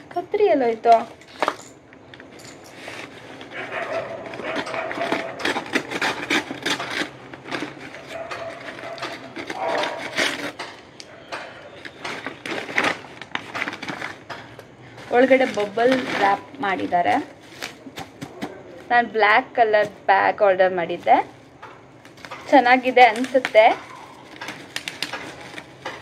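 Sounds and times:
paper package rustling: 2.8s - 10.9s, 11.7s - 18.9s, 22.0s - 26.0s
scissors cutting paper: 3.5s - 10.7s.

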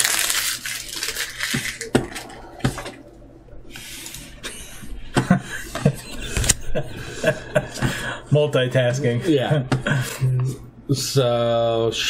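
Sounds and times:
cards rustling: 0.0s - 3.0s.

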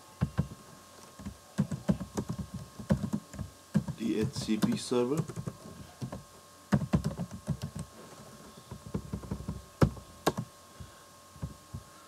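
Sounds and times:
computer keyboard typing: 1.2s - 7.9s.

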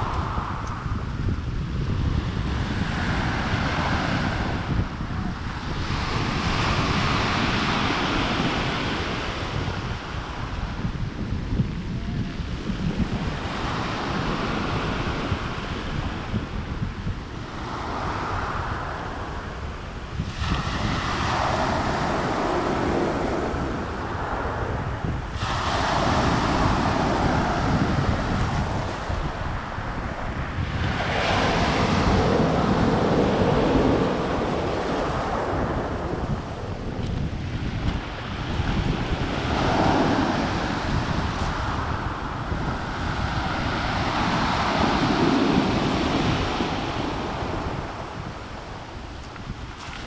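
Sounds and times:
wind rumble on microphone: 0.0s - 50.0s
waves washing up pebble beach: 20.2s - 24.5s, 25.4s - 29.2s, 37.9s - 48.4s.

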